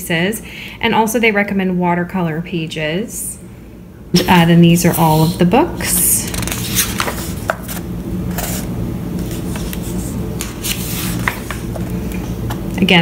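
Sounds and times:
steady low hum: 0.0s - 13.0s
book pages rustling and flapping: 6.2s - 12.7s.

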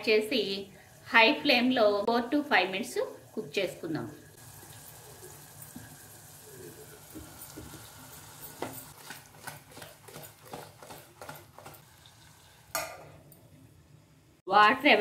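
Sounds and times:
chicken sizzling in hot pot: 3.0s - 14.4s.

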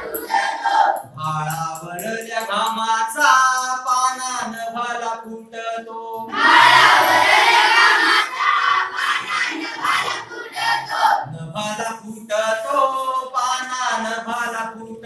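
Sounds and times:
children singing in unison: 0.0s - 1.1s, 6.2s - 11.3s.

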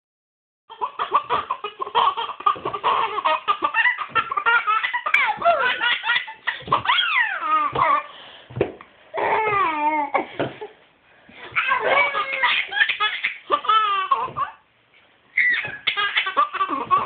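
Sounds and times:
baby giggling: 0.7s - 8.1s, 11.5s - 14.6s, 15.4s - 17.0s
baby high squeal: 6.8s - 8.1s, 11.6s - 14.6s, 15.4s - 17.0s.

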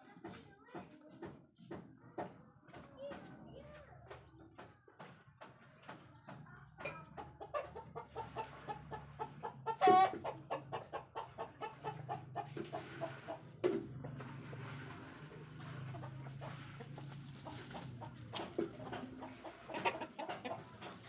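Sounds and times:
chickens clucking: 0.2s - 21.0s
chicken squawk: 7.5s - 13.4s.

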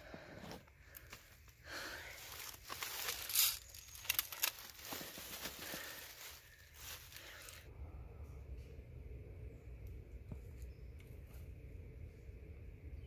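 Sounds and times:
twigs cracking: 0.8s - 7.7s
dry leaves rustling and crunching: 2.0s - 7.7s.

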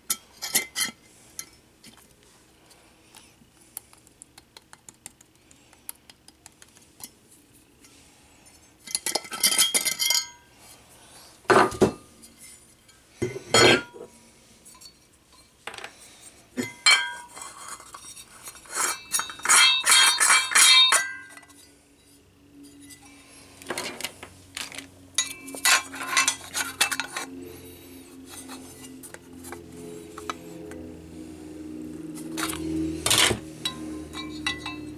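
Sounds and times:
screws and parts clinking: 8.9s - 10.3s, 16.7s - 21.6s, 23.6s - 27.3s, 32.3s - 34.9s.

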